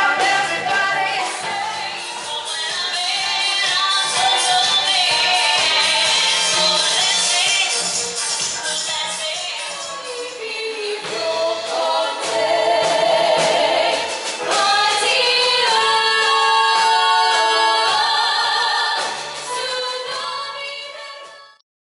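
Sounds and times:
women singing in harmony: 0.0s - 21.6s.

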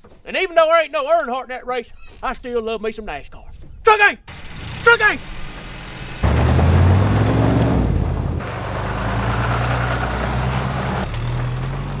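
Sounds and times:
pickup truck engines revving: 4.3s - 12.0s.

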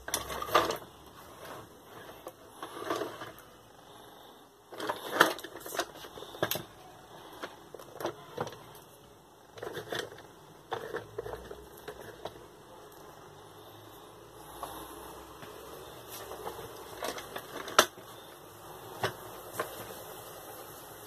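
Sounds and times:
toy wheels clicking and clattering: 0.0s - 3.6s, 4.7s - 13.0s, 15.8s - 20.1s.

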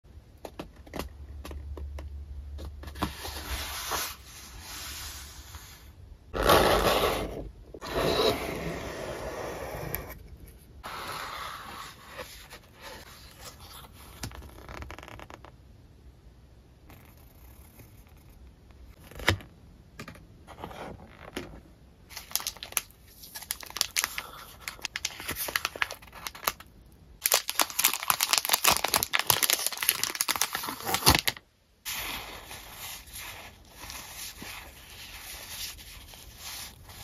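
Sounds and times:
paper rustling: 22.1s - 26.6s.

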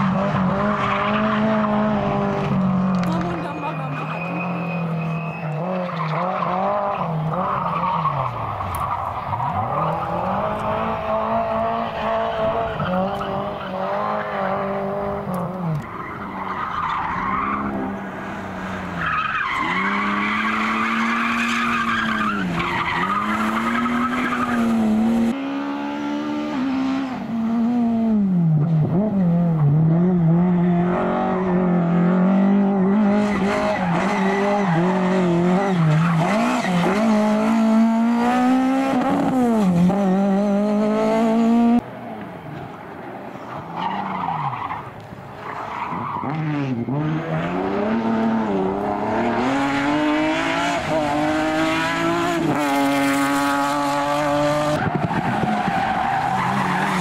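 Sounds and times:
rally car engine at high revs: 0.0s - 41.8s, 45.4s - 57.0s
tyres squealing and skidding: 0.2s - 14.8s, 15.6s - 25.4s, 33.1s - 37.8s, 43.3s - 52.6s, 53.4s - 57.0s.

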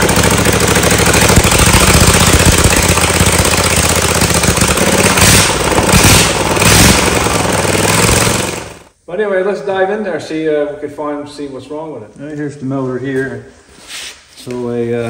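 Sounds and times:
lawn tractor engine running: 0.0s - 8.9s
rushing bursts: 0.0s - 8.9s.

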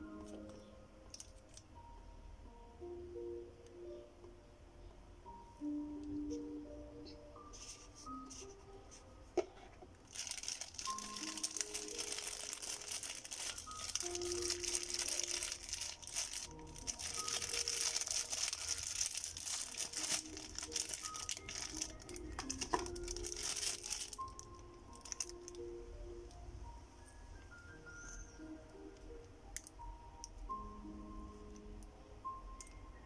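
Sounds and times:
soft plinking background music: 0.0s - 33.0s
plastic bag crinkling: 10.0s - 25.6s.

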